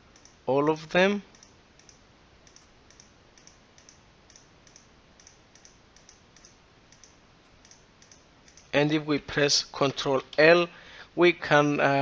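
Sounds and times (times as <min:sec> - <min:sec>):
low steady hiss: 0:00.0 - 0:12.0
computer mouse clicks: 0:00.1 - 0:00.4, 0:01.3 - 0:08.8.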